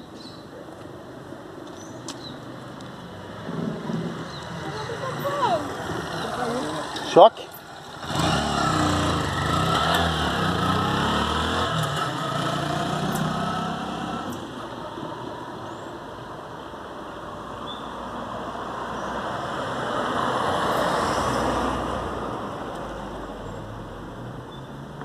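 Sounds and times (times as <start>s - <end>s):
road noise of passing vehicle: 0.0s - 25.0s
vehicle driving past: 3.2s - 14.6s.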